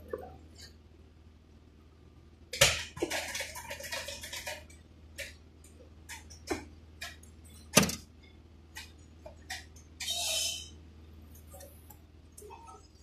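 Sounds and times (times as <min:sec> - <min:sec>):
low steady hum: 0:00.0 - 0:13.0
sharp clicks and knocks: 0:06.0 - 0:08.1.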